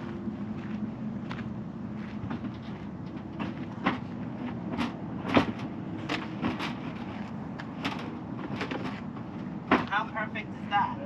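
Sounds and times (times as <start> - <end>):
steady low hum: 0.0 - 11.0
items knocking and clunking: 7.7 - 10.0.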